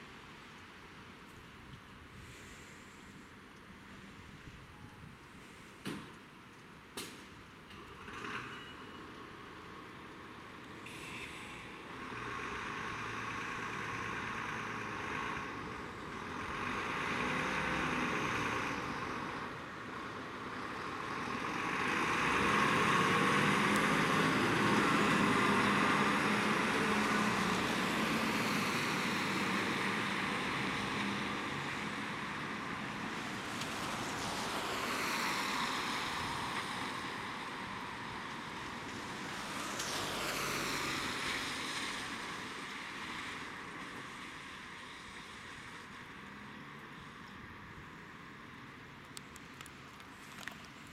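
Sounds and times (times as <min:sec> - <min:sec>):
tyres hissing on wet road: 0:02.0 - 0:04.4, 0:05.2 - 0:06.1, 0:07.8 - 0:50.9
fire engine diesel engine: 0:02.0 - 0:50.9
traffic sweeping past: 0:07.8 - 0:50.9.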